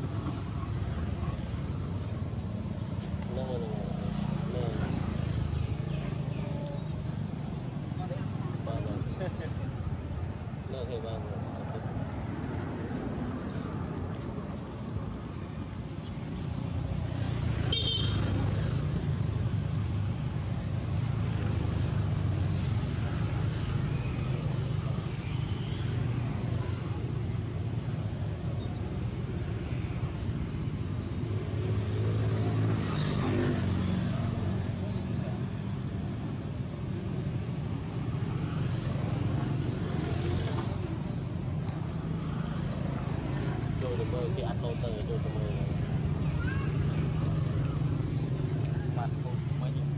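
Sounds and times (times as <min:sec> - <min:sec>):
low engine rumble: 0:40.7 - 0:49.9.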